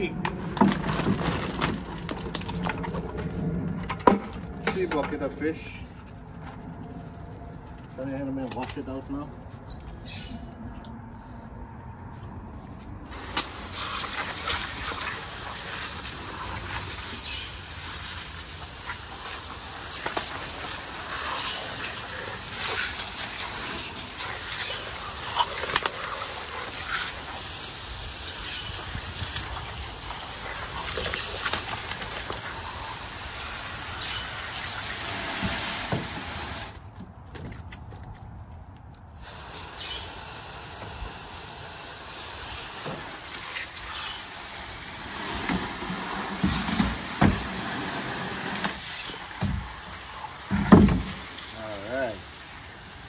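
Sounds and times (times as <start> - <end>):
hose spraying water: 13.1 - 36.8, 39.1 - 53.0.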